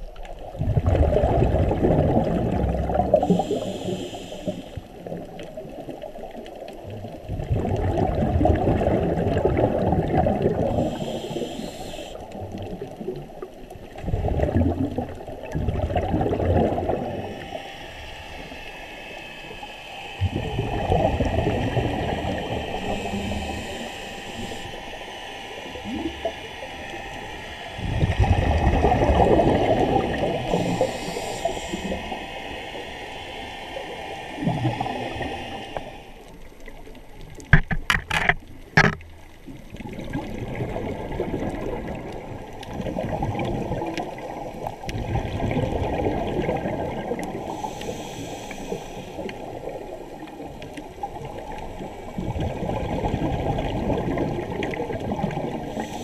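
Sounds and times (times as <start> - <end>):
exhaled bubbles underwater: 0.0 - 37.6, 38.4 - 56.0
scuba regulator breathing: 2.5 - 5.0, 10.3 - 12.4, 15.9 - 36.3, 45.4 - 52.6, 55.5 - 56.0.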